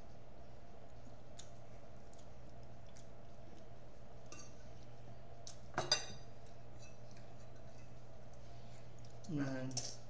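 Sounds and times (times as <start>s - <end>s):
low steady hum: 0.0s - 10.0s
faint eating ticks: 0.7s - 5.7s.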